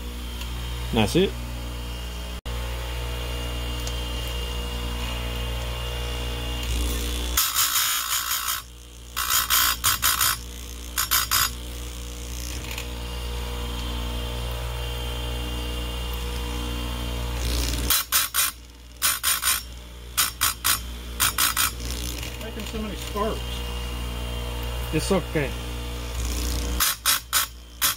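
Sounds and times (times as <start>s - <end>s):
grinder motor humming: 0.0s - 27.9s
grinding wheel scratching chain: 6.6s - 12.9s, 17.4s - 23.6s, 26.1s - 27.9s.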